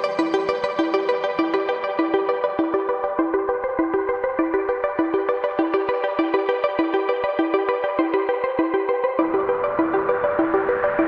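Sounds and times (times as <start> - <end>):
electronic music with synthesizer: 0.0 - 11.0.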